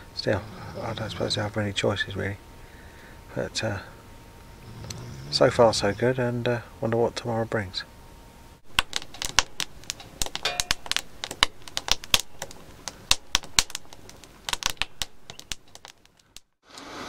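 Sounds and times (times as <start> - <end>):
fire crackling in a metal stove: 0.0 - 17.0.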